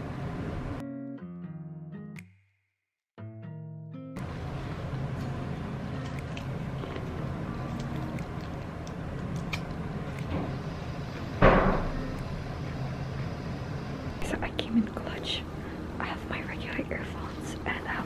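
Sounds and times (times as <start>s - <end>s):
guitar background music: 0.8s - 2.3s, 3.2s - 12.9s
low hum: 4.2s - 18.0s
loud thump: 11.4s - 12.0s.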